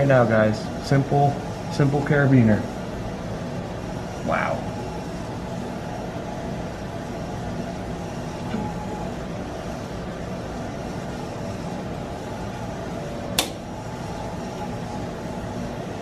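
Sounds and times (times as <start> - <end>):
testing machine humming: 0.0 - 16.0
plastic snapping: 13.4 - 13.6.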